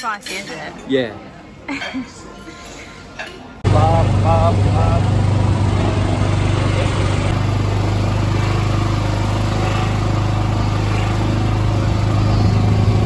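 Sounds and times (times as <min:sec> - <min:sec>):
low motor hum: 0:03.6 - 0:13.0.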